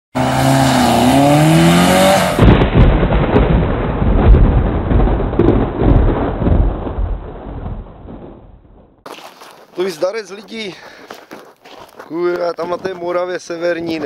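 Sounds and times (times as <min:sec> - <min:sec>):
car engine revving: 0:00.2 - 0:02.4.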